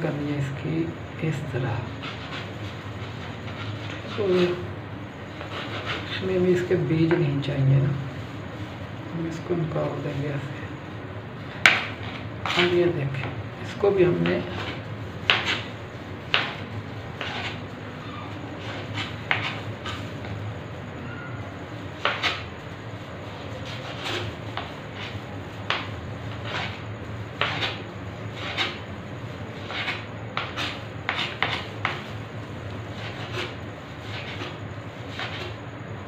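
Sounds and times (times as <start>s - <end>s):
low steady hum: 0.0s - 36.0s
knife on cutting board: 14.2s - 15.7s, 16.3s - 16.6s, 17.2s - 17.6s, 18.6s - 20.4s, 22.0s - 22.5s, 23.6s - 26.8s, 27.4s - 27.8s, 28.4s - 28.8s, 29.6s - 32.1s, 33.0s - 35.6s.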